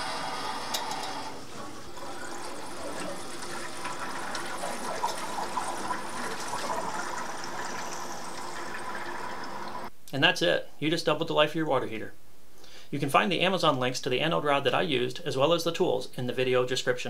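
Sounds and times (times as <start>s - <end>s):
water rushing into tank: 0.0s - 9.9s.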